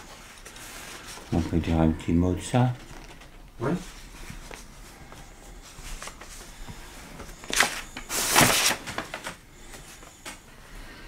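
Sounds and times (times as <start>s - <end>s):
paper rustling and shuffling: 2.6s - 10.4s.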